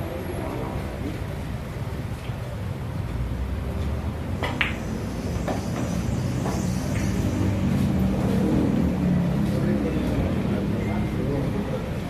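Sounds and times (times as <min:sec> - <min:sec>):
cue ball click: 0:04.4 - 0:04.8.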